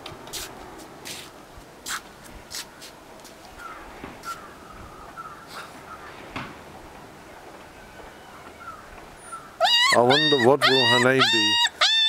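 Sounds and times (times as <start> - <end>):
puppy whimpering: 9.6 - 12.0.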